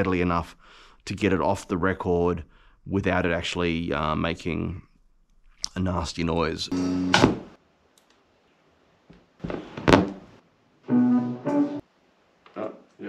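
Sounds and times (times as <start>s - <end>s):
short bursts of record music: 10.9s - 11.8s.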